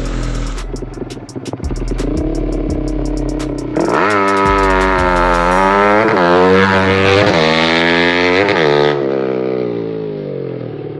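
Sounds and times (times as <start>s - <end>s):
background music beat: 0.0s - 7.1s
motorcycle engine revving: 0.0s - 10.9s.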